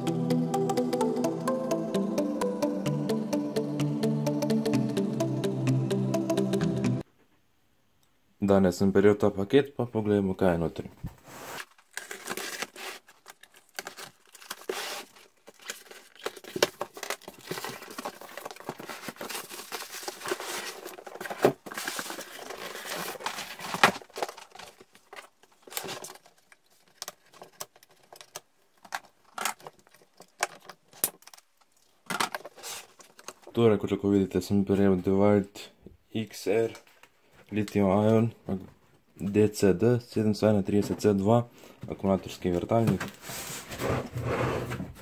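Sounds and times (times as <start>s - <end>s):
plastic wrapping crinkling: 11.4s - 33.5s
packing tape tearing: 11.5s - 31.5s.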